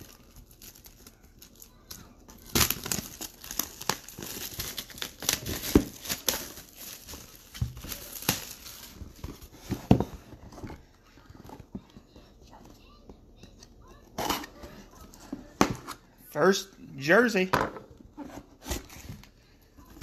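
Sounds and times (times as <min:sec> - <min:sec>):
packaging crinkling and tearing: 0:00.0 - 0:09.5.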